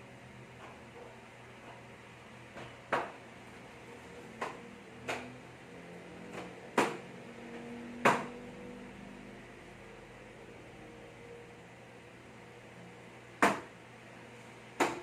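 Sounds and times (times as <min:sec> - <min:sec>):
faint steady hum: 0:00.0 - 0:15.0
items knocking on shelf rack: 0:02.5 - 0:03.2, 0:04.4 - 0:05.4, 0:06.2 - 0:07.1, 0:08.0 - 0:08.4, 0:13.4 - 0:13.7, 0:14.8 - 0:15.0.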